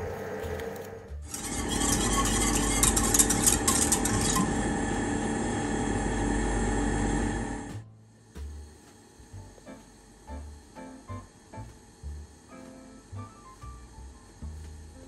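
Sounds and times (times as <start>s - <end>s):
gas stove rushing: 0.0s - 7.8s
spoon scraping metal saucepan: 1.3s - 4.6s.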